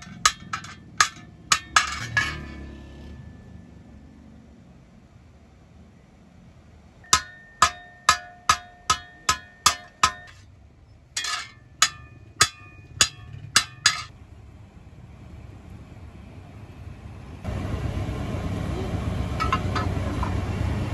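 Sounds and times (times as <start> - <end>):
hammer striking metal on anvil: 0.0 - 3.5, 7.1 - 10.4, 11.2 - 14.1
metal scraping clatter: 0.0 - 3.6, 7.2 - 10.5, 11.2 - 14.1.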